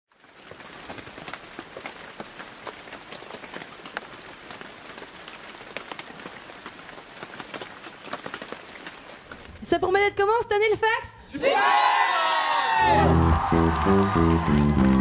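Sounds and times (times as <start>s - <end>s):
rain drops striking surface: 0.1s - 10.4s.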